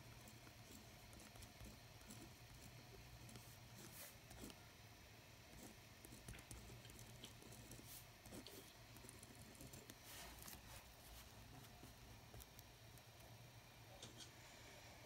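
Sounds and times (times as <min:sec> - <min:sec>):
low steady hum: 0:00.0 - 0:15.0
pen scratching on paper: 0:00.2 - 0:04.6, 0:05.5 - 0:12.6.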